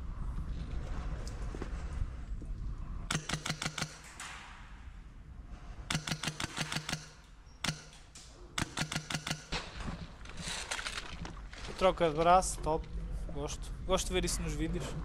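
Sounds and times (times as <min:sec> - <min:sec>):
airsoft rifle rapid shots: 0:03.1 - 0:04.2, 0:05.9 - 0:09.8.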